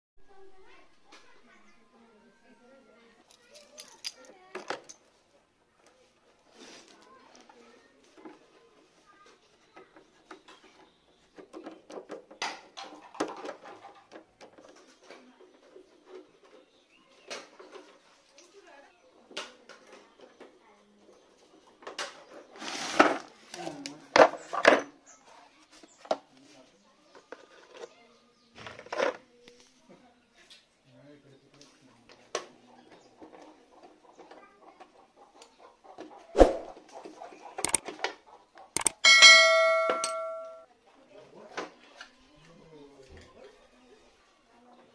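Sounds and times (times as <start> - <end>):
screwdriver clicking on screws: 38.8 - 39.0
tool and screws rattling: 38.8 - 40.5.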